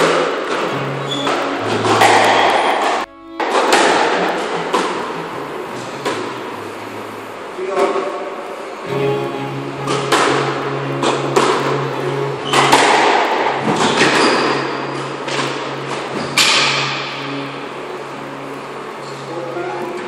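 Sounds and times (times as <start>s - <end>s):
squash ball knocking off walls: 0.0s - 4.0s
steady low hum: 0.6s - 20.0s.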